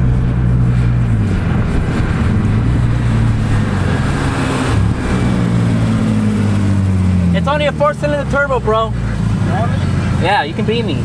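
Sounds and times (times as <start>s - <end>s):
car engine running at low revs: 0.0s - 11.0s.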